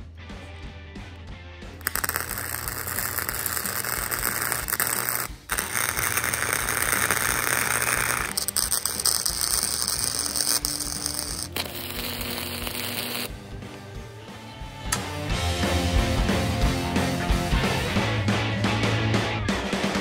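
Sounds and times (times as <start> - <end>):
welding arc crackling: 1.8 - 13.3.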